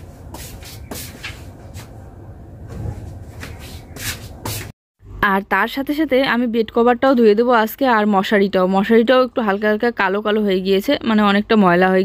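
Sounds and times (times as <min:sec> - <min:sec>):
cloth rustling and swishing: 0:00.0 - 0:04.7.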